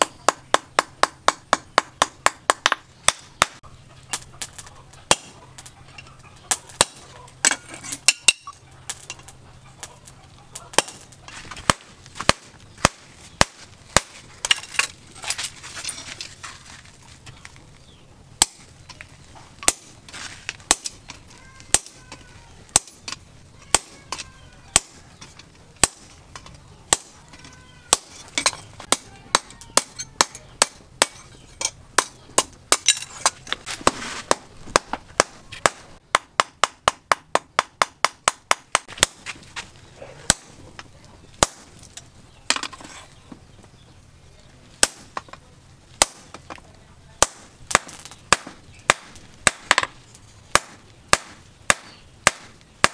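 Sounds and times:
hammer striking steel on anvil: 0:06.8 - 0:09.0.

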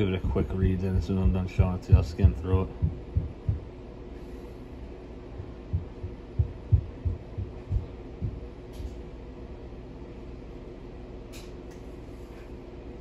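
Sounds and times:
soft low thumps: 0:00.0 - 0:03.8, 0:05.2 - 0:08.5
steady low hum: 0:00.0 - 0:13.0.

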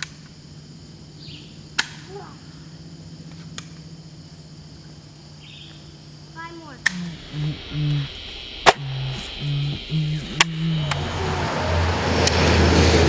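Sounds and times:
low hum: 0:00.0 - 0:13.0
toy rifle snaps: 0:01.8 - 0:02.0.

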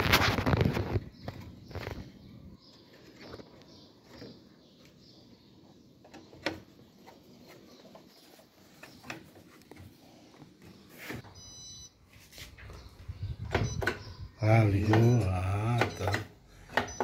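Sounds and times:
electronic beep: 0:11.4 - 0:12.0, 0:13.6 - 0:14.2, 0:14.8 - 0:17.0
plastic parts clicking and knocking: 0:15.7 - 0:17.0.

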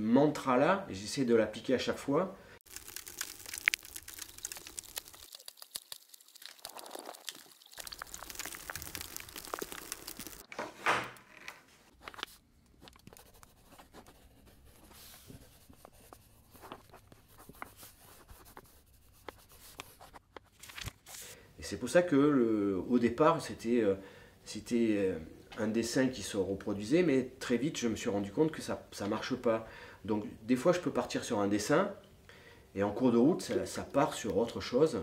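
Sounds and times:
dry grainy material crackling: 0:02.6 - 0:10.4.

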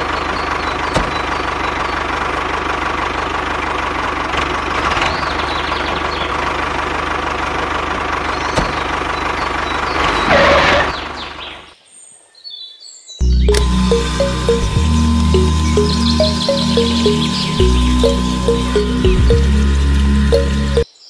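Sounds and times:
toy tractor engine running: 0:13.5 - 0:20.8.

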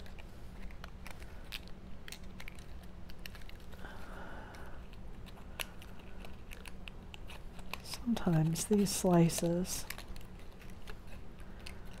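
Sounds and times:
stiff paper clicking: 0:00.0 - 0:12.0.

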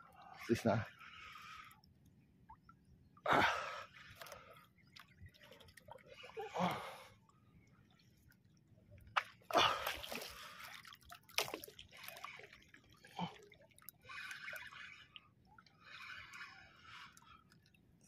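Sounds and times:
water splashing and dripping: 0:09.0 - 0:17.8.

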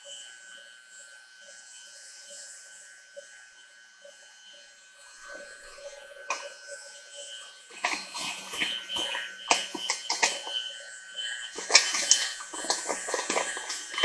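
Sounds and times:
stand mixer motor whine: 0:05.2 - 0:14.0.

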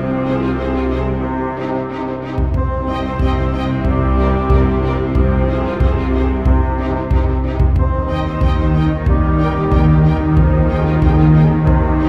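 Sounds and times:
deep steady bass: 0:00.0 - 0:12.0
sustained chords: 0:00.0 - 0:12.0.

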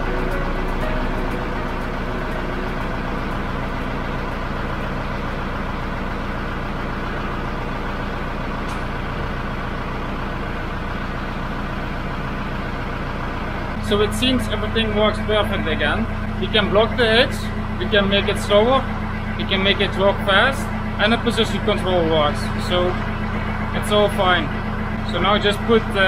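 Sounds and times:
hydraulic hitch moving: 0:00.0 - 0:12.7
tractor diesel engine running: 0:00.0 - 0:26.0.

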